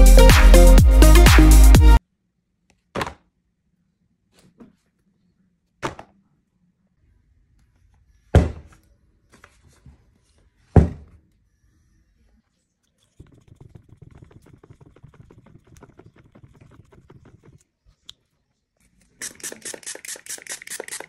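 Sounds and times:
plastic bottle thudding down: 3.0s - 3.2s.

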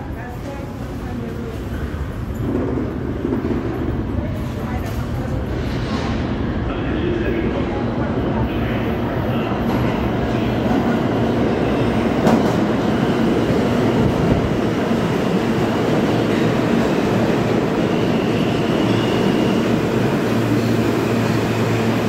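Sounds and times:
subway train wheels rumbling on rail: 0.0s - 22.0s
high squeal from train wheels: 17.4s - 22.0s.

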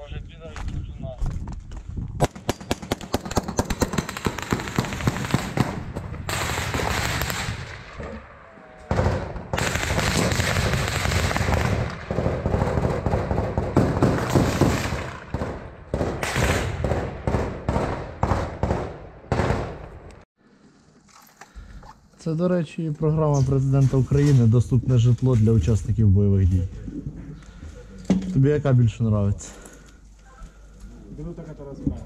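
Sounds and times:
automatic rifle gunfire: 8.9s - 19.8s.

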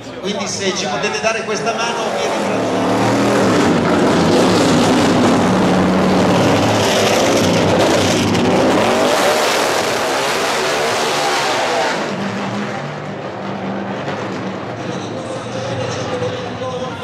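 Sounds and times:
race car engine revving: 1.0s - 17.0s.

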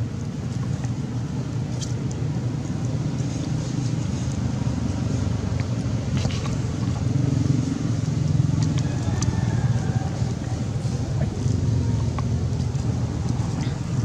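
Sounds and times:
low rumbling noise: 0.0s - 14.0s.

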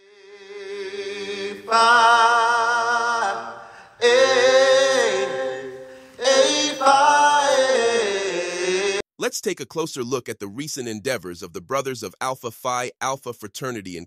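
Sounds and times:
a cappella singing: 0.0s - 9.1s.

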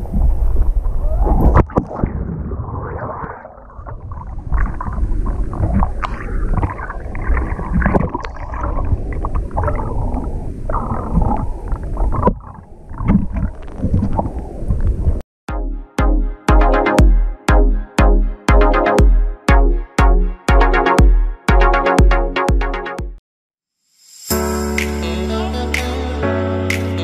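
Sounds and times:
water splashing and churning: 0.0s - 15.2s.

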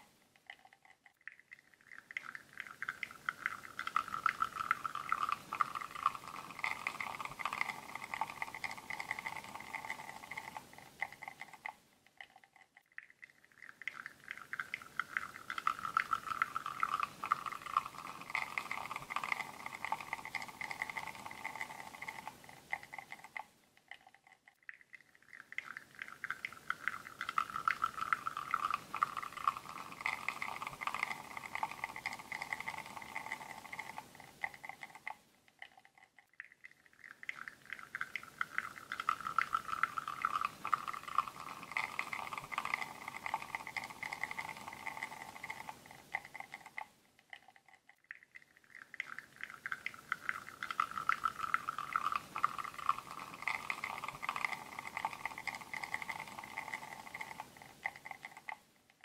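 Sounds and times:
espresso sputtering into cup: 2.8s - 11.5s, 15.0s - 23.2s, 26.2s - 34.0s, 37.9s - 46.6s, 49.7s - 58.5s.

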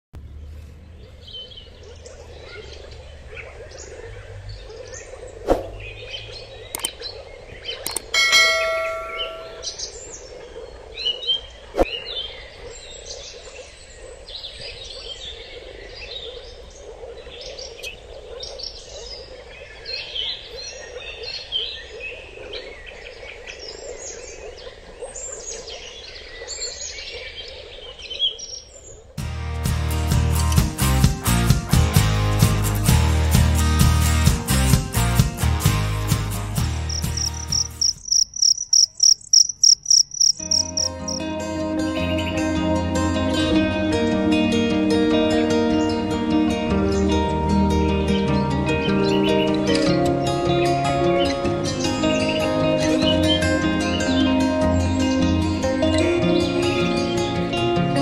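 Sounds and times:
small birds chirping: 0.2s - 29.1s, 36.8s - 41.2s
sharp clicks: 6.8s - 7.0s, 7.8s - 8.1s
metallic ding: 7.9s - 9.8s.

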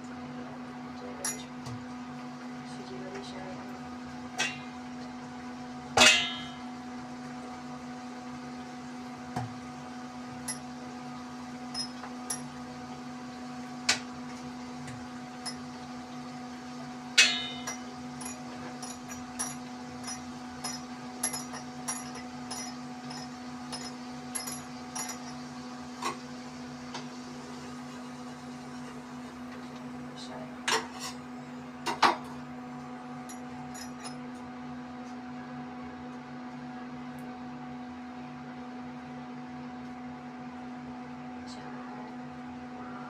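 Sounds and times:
steady low hum: 0.0s - 43.0s
light clicks and clinks: 17.3s - 25.4s.

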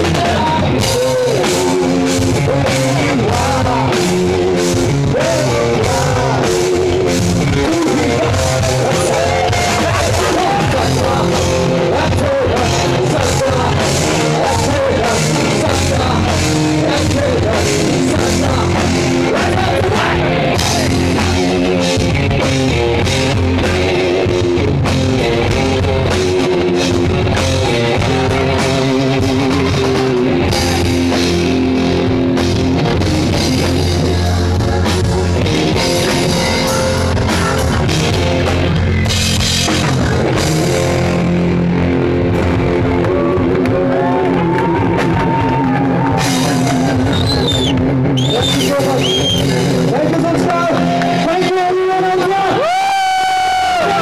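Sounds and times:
person singing: 0.0s - 22.0s, 25.4s - 31.2s, 33.4s - 38.4s, 43.0s - 47.1s
rock band playing: 0.0s - 54.0s.

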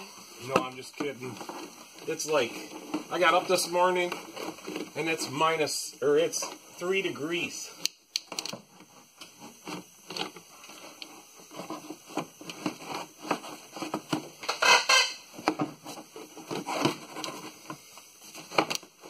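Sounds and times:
plastic cover tapping and scraping: 8.3s - 14.7s.

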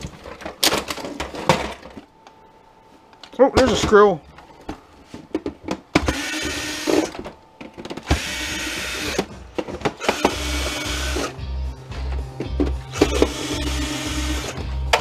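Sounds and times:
cordless drill running: 6.0s - 7.2s, 8.1s - 9.3s, 10.0s - 11.3s, 12.9s - 14.6s.

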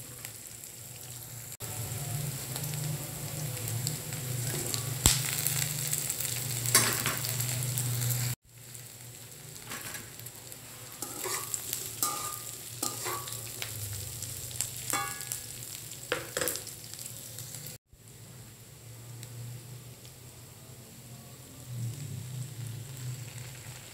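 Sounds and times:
oil sizzling in a wok: 0.0s - 23.9s
spatula scraping a wok: 4.3s - 8.4s, 9.6s - 16.6s.

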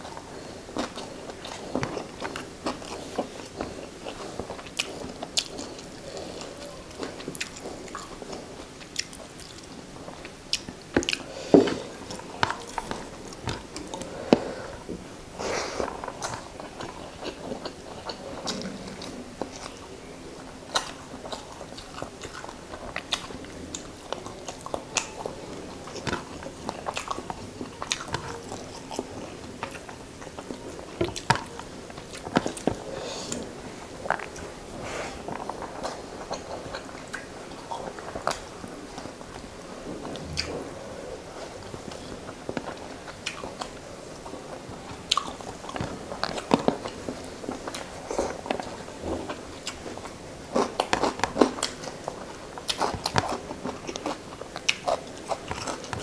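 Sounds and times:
chewing with wet mouth smacks: 0.0s - 15.1s, 15.8s - 56.0s.

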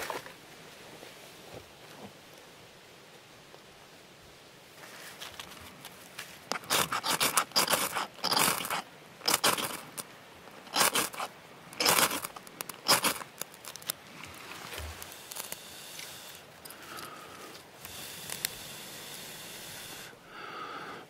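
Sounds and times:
fire steel scraping: 6.5s - 18.5s.

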